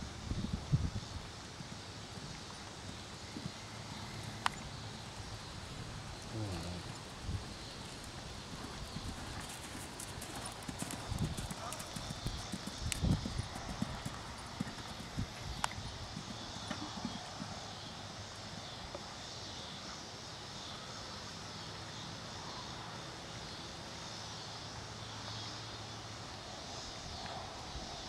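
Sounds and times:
faint low drone: 0.0 - 9.1
horse hoofbeats on sand: 6.6 - 17.9.

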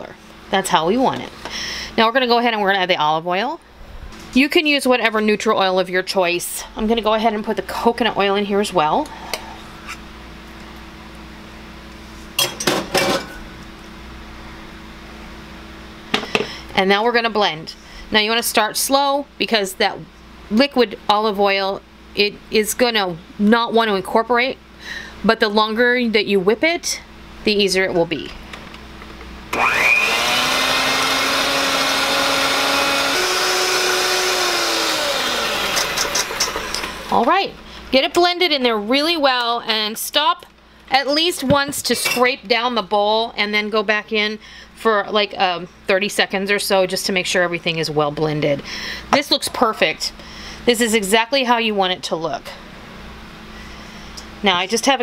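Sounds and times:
faint steady hum: 0.0 - 55.0
electric hand mixer whining: 29.5 - 37.2.

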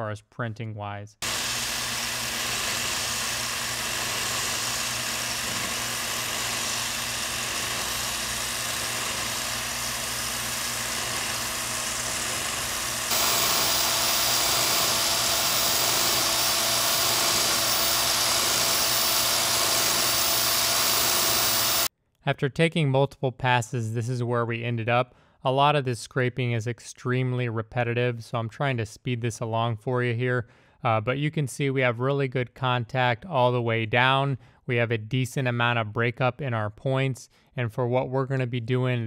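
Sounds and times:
electric power scraper scraping metal: 1.2 - 21.9.

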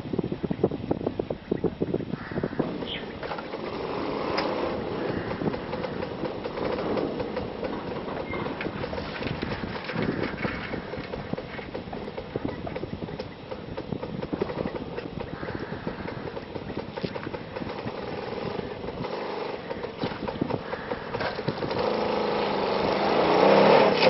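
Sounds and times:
rattling knocks from bridge deck: 2.6 - 18.2
motorcycle engines: 2.6 - 24.0.

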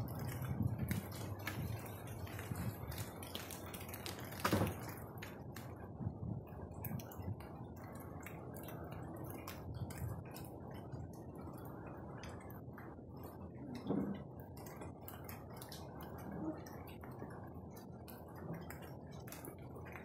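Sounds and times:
steady rain falling: 0.0 - 20.0
water drops ticking: 6.4 - 20.0.

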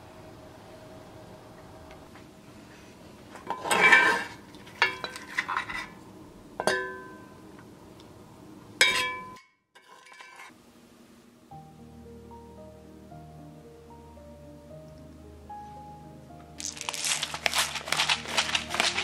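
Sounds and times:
kitchenware clinking: 3.4 - 5.9, 6.6 - 7.2, 8.8 - 10.5.

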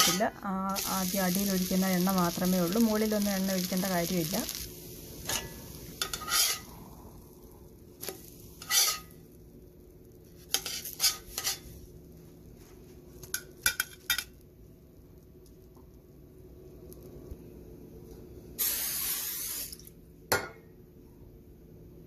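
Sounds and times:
spatula scraping a pan: 0.0 - 0.3, 5.2 - 6.7, 8.0 - 9.2, 10.4 - 11.7
faint sizzle: 0.0 - 21.6.

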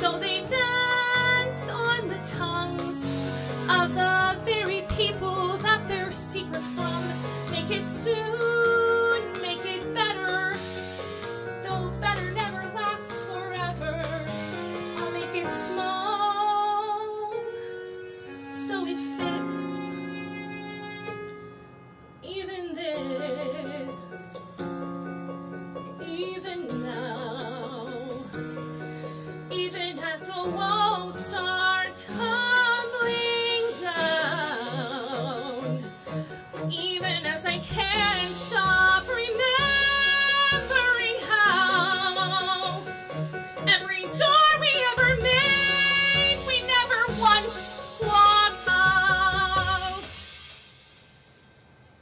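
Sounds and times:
woman singing operatically: 0.0 - 10.6, 11.6 - 14.3, 29.6 - 35.8, 36.7 - 42.8, 43.7 - 50.0
instrumental accompaniment: 0.0 - 52.0.

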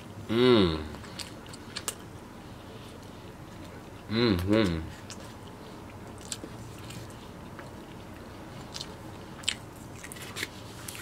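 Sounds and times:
mouth chewing food: 2.9 - 11.0.

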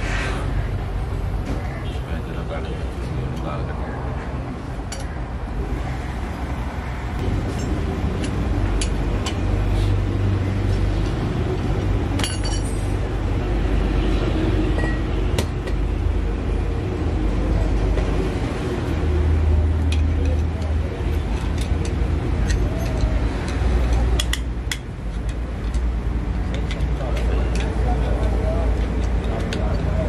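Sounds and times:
vehicle engine rumbling: 0.0 - 30.0.

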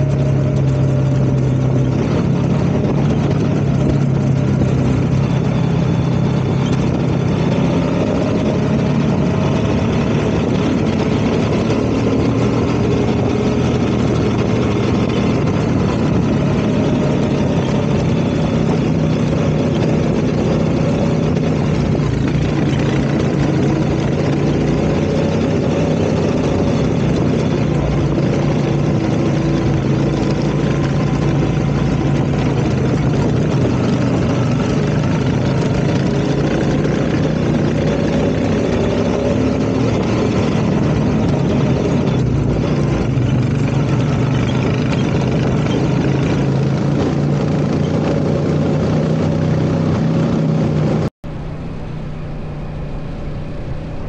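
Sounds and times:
atv engine running: 0.0 - 54.0.

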